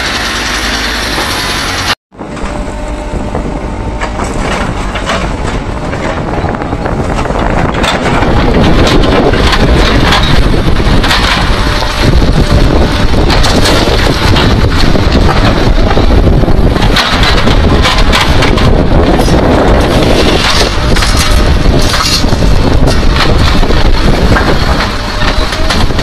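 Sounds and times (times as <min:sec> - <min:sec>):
diesel engine running: 0:00.0 - 0:26.0
rocks clattering in steel bucket: 0:16.8 - 0:24.8.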